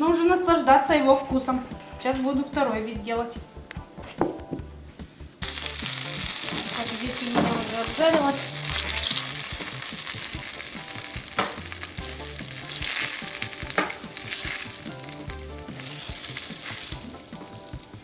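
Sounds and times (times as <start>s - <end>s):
oil sizzling in frying pan: 5.4s - 18.0s.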